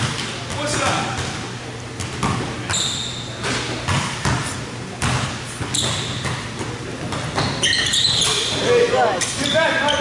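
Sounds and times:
sneakers squeaking on floor: 0:02.0 - 0:10.0.

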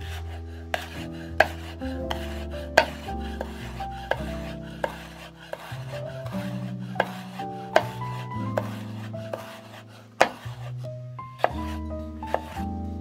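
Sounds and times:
background music with held notes: 0:00.0 - 0:13.0
knife striking cutting board: 0:02.8 - 0:03.0, 0:07.0 - 0:07.2, 0:07.8 - 0:08.0, 0:10.2 - 0:10.4.

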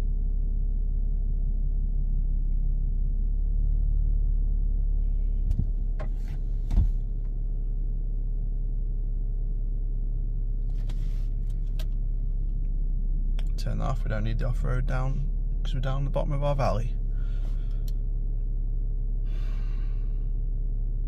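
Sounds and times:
diesel engine idling: 0:04.4 - 0:21.0.

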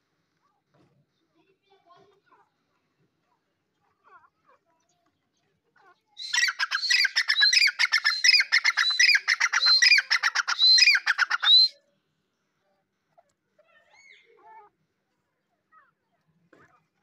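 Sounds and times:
bird calling rapid sharp notes: 0:06.2 - 0:11.8.

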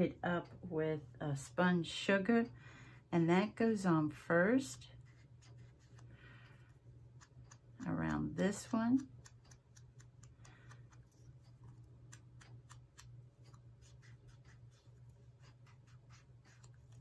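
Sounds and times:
low steady hum: 0:00.0 - 0:17.0
sponge tool dabbing paper: 0:05.0 - 0:06.1, 0:08.1 - 0:17.0.

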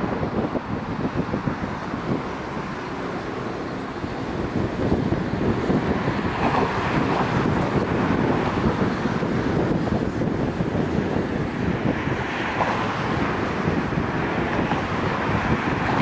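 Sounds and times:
electric trains running: 0:00.0 - 0:16.0
road noise from moving vehicle: 0:00.0 - 0:16.0
wind on the microphone: 0:00.0 - 0:16.0.

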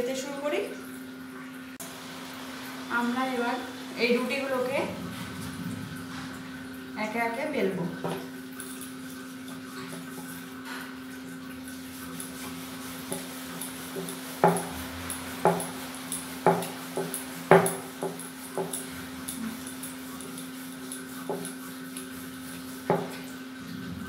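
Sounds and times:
steady low hum: 0:01.4 - 0:08.9.

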